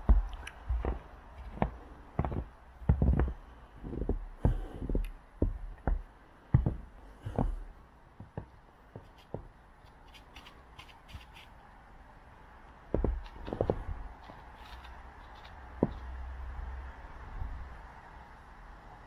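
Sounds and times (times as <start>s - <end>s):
footsteps on snow: 0.0s - 11.6s, 12.9s - 16.2s.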